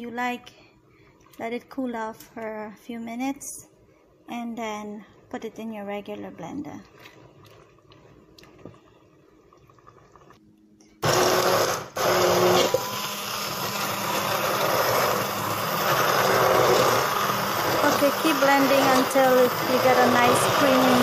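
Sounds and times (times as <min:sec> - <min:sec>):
stick blender motor running: 0:11.0 - 0:21.0.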